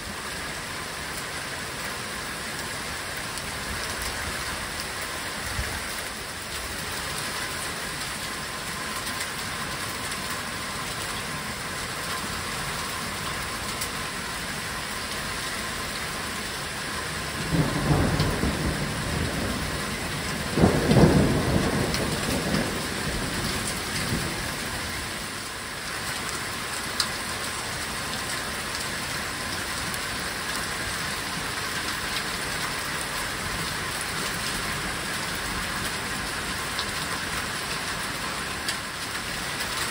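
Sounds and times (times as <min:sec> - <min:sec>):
heavy rain pouring: 0:00.0 - 0:39.9
thunder rumbling: 0:17.3 - 0:25.0.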